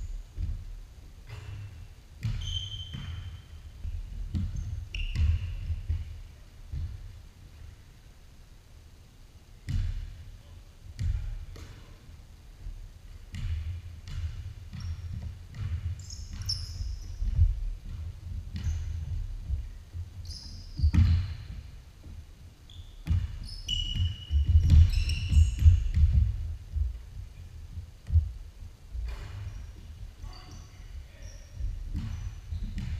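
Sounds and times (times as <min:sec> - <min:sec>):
sneakers squeaking: 0:00.0 - 0:07.8, 0:13.1 - 0:28.3, 0:28.9 - 0:32.9
basketball bouncing on wooden floor: 0:00.2 - 0:07.2, 0:09.6 - 0:10.2, 0:11.0 - 0:11.8, 0:13.1 - 0:32.9.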